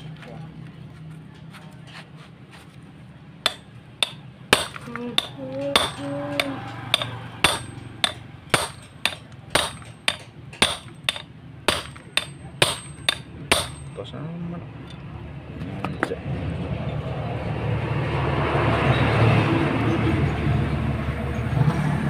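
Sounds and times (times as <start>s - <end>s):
hammer striking metal drift: 3.5s - 14.0s.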